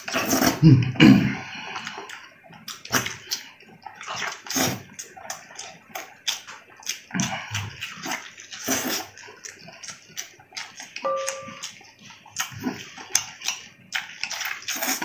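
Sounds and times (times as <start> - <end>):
slurping: 0.0 - 15.0
wet chewing: 1.4 - 15.0
lip smacks: 11.6 - 15.0.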